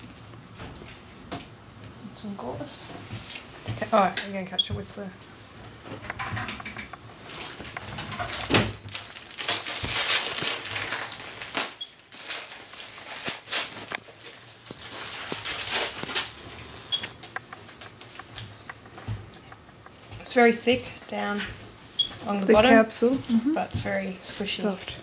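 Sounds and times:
gloves and gauze rustling: 7.1s - 19.3s.

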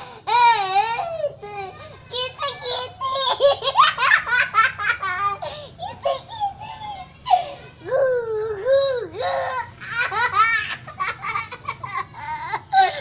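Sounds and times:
girl laughing: 3.0s - 13.0s.

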